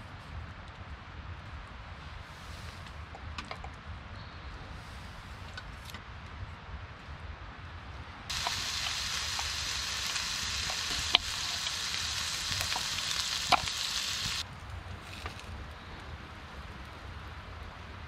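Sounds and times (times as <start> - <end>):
bacon sizzling in a pan: 8.3 - 14.4.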